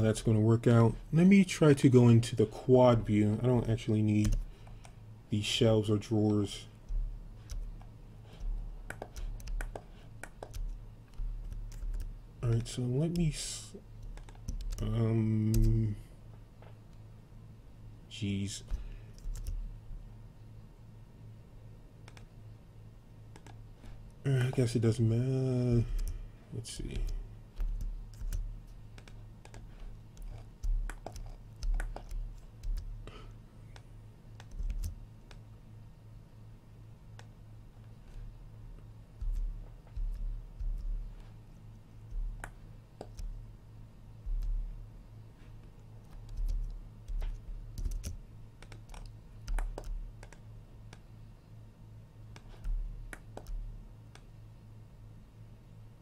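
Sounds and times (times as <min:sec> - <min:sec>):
low electrical hum: 0:00.0 - 0:56.0
keyboard and mouse clicks: 0:06.3 - 0:13.2, 0:14.0 - 0:14.9, 0:22.0 - 0:22.3, 0:23.3 - 0:23.6, 0:26.9 - 0:32.9, 0:33.7 - 0:35.4, 0:39.2 - 0:41.0, 0:42.1 - 0:43.3, 0:46.0 - 0:51.1, 0:52.3 - 0:54.3
keyboard keys clicking: 0:08.9 - 0:12.1, 0:34.4 - 0:35.4, 0:46.0 - 0:51.0.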